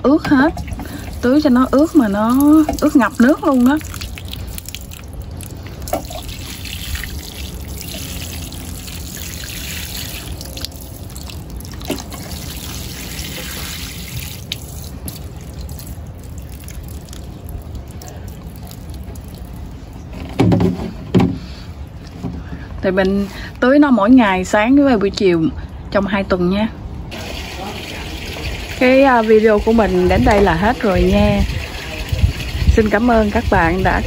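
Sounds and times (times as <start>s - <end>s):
water sprinkling onto soil: 0.9s - 19.7s, 27.1s - 34.0s.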